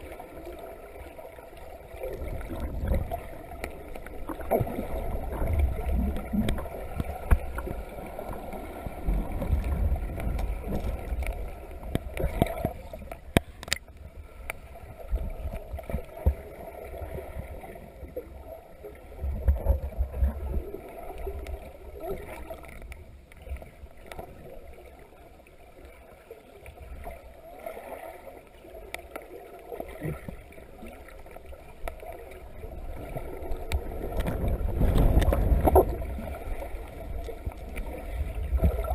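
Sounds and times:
muffled underwater rumbling: 0:00.0 - 0:38.9
underwater clicks and knocks: 0:02.2 - 0:16.6, 0:32.9 - 0:38.9.

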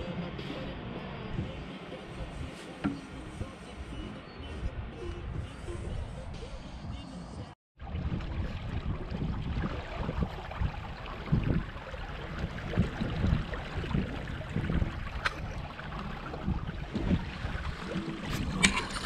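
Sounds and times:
water washing along hull: 0:07.8 - 0:19.0
wind buffeting microphone: 0:07.8 - 0:19.0.

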